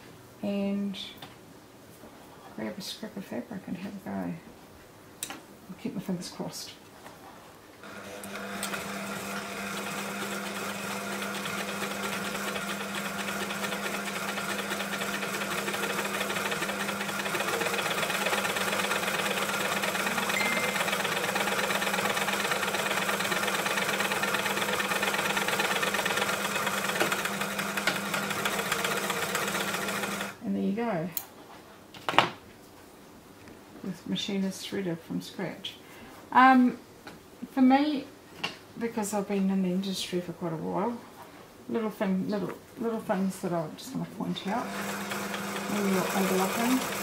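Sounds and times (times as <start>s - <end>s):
overlocker sewing machine running: 7.8s - 30.4s, 44.5s - 47.0s.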